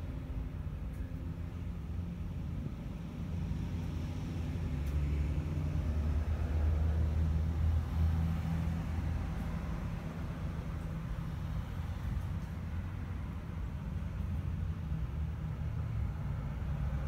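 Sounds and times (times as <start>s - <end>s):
low mechanical hum and rumble: 0.0s - 17.0s.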